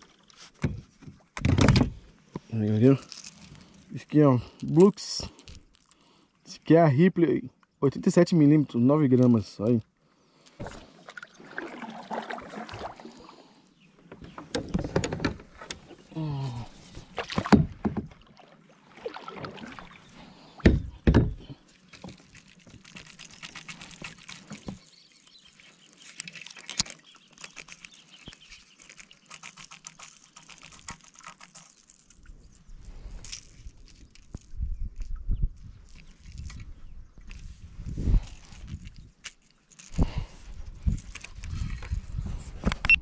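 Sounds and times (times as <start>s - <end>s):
paddle splashing in water: 10.6s - 13.6s, 16.7s - 21.0s.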